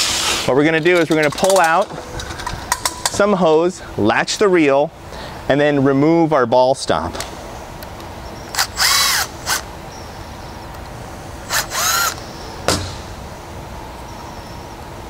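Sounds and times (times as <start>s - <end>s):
cordless drill motor whine: 8.5s - 9.7s, 11.5s - 12.3s
sharp knock: 12.7s - 13.1s.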